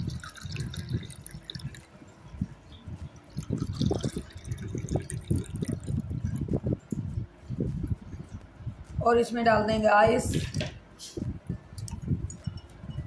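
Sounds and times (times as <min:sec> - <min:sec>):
liquid pouring into glasses: 0:00.0 - 0:02.0, 0:03.3 - 0:06.6.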